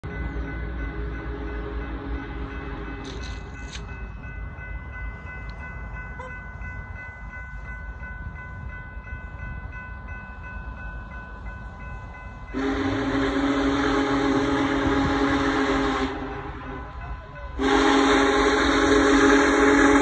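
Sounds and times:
steam whistle chord: 12.5 - 20.0.

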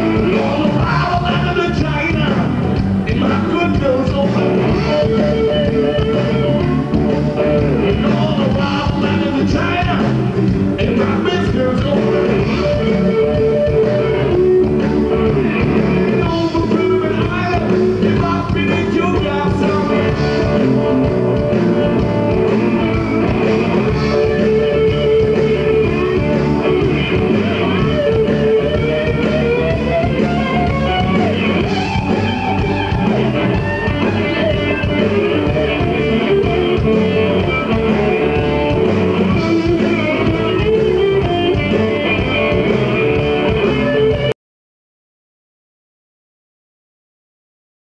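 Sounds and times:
person singing: 0.0 - 6.6, 7.6 - 14.2, 15.4 - 20.9
electric guitars: 0.0 - 44.3.

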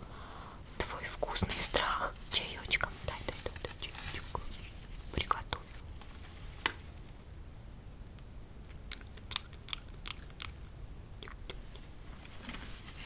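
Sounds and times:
faint low hum: 0.0 - 13.0
wet mouth clicks and smacks: 8.6 - 11.9.

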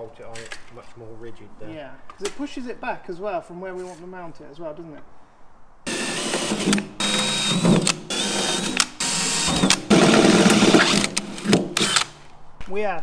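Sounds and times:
cordless drill boring through steel: 5.9 - 12.2.

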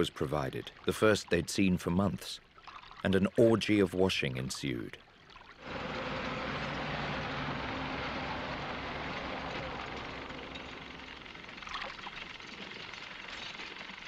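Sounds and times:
engine running steadily: 5.6 - 14.0.

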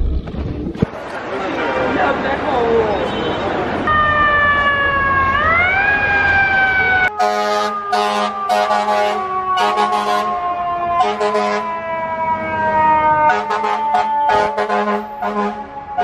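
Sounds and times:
fire truck siren: 3.9 - 16.0.

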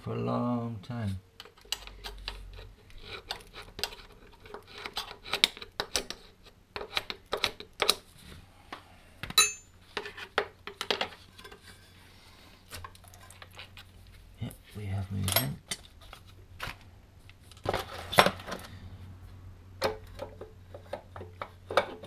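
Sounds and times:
metal tools clinking and tapping: 9.4 - 9.7, 15.2 - 15.9
ringing metal clang: 9.4 - 9.7.

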